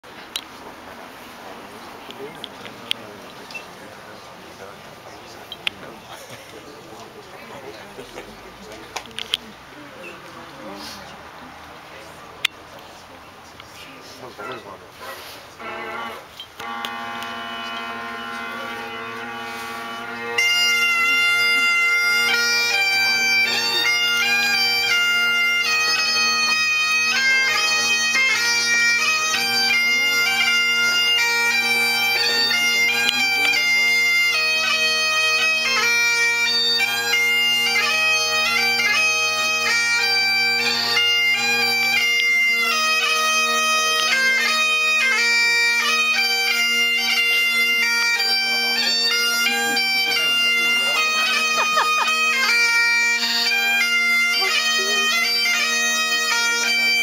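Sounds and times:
bagpipe drones: 0:01.1 - 0:11.2, 0:13.7 - 0:57.0
bagpipe chanter melody: 0:15.6 - 0:57.0.

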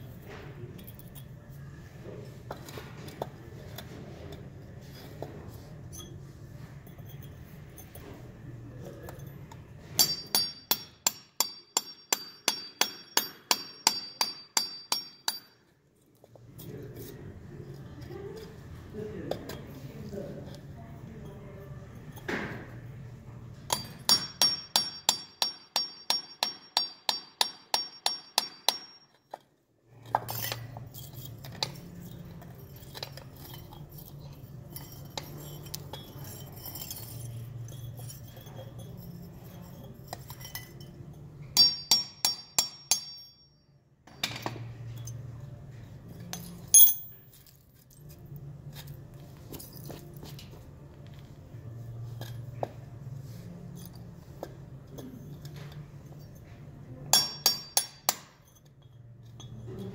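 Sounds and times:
hammer striking metal punch: 0:10.0 - 0:15.5, 0:23.7 - 0:29.0, 0:41.6 - 0:43.5, 0:46.8 - 0:47.2, 0:57.1 - 0:58.4.

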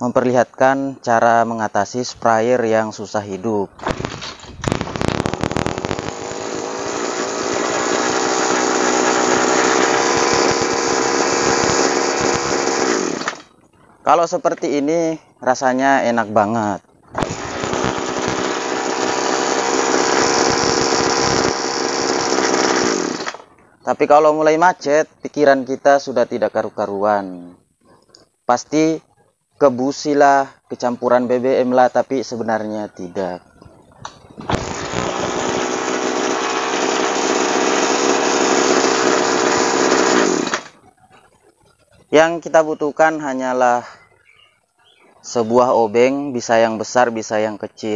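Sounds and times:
two-stroke sprayer engine running: 0:03.8 - 0:13.4, 0:17.2 - 0:23.5, 0:34.4 - 0:40.8
two-stroke engine idling: 0:05.7 - 0:13.4.

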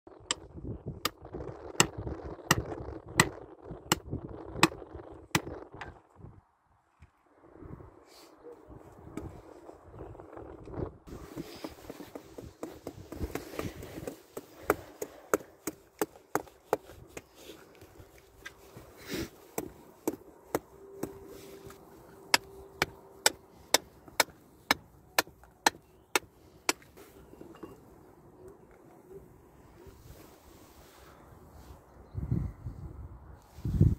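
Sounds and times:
hammer tapping on rock: 0:22.3 - 0:26.9.

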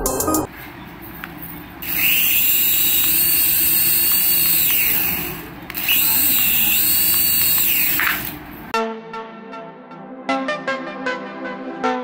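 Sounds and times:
toy helicopter motor whine: 0:01.8 - 0:08.5.

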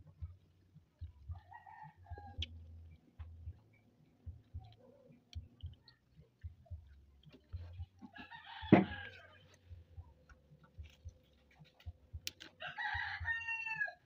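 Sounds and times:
rooster crowing: 0:01.4 - 0:02.5, 0:08.0 - 0:09.6, 0:12.6 - 0:14.0
faint clicks of fruit peeling: 0:09.1 - 0:12.6.

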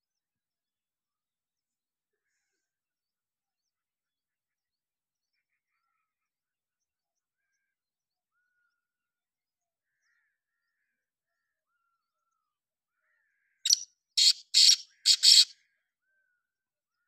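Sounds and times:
francolin harsh grating calls: 0:13.7 - 0:15.5.

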